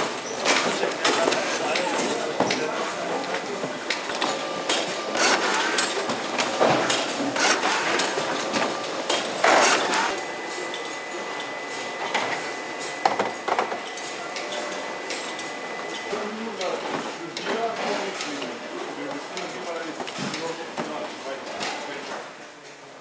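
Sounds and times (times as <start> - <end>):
cartons knocking on conveyors: 3.6 - 10.1
thin steady machine tone: 9.8 - 16.8.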